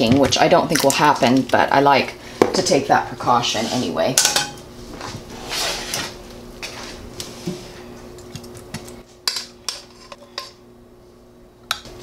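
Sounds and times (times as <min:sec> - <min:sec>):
metal tongs clinking on pans: 0:04.2 - 0:04.6.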